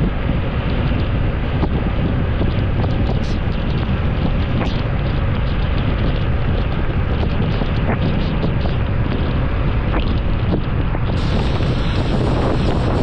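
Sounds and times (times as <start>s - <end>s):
vehicle road noise on wet road: 0.0s - 13.0s
wind noise: 0.0s - 13.0s.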